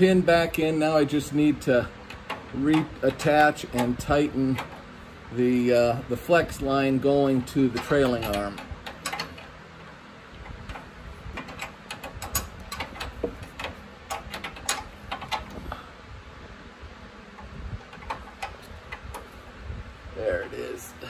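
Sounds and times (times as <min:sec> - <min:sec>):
wrench clicking on metal fitting: 0:07.7 - 0:09.5.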